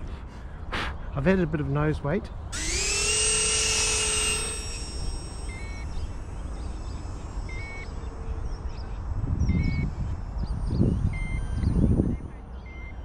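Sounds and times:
electric ducted fans whining: 2.5s - 13.0s
short alarm beeps: 7.5s - 7.9s, 10.9s - 13.0s.

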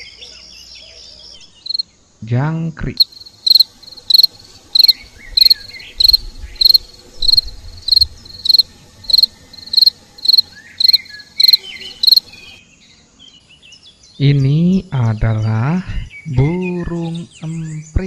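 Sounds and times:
cricket chirping: 0.0s - 16.6s.

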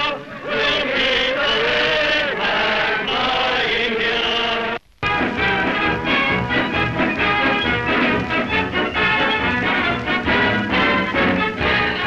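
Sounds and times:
choir singing long notes: 0.0s - 12.0s
band music: 5.0s - 12.0s.

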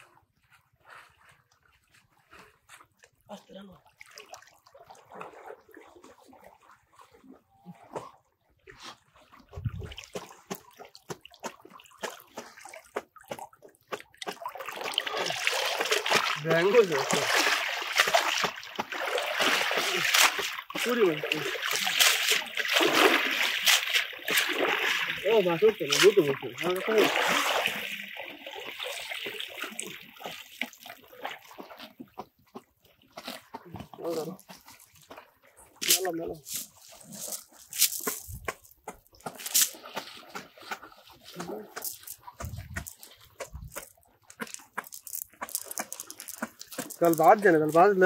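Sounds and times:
shallow water splashing: 0.8s - 48.0s
rush of splashing water: 3.7s - 32.0s, 32.8s - 48.0s
water dripping: 9.4s - 36.2s, 37.3s - 48.0s.

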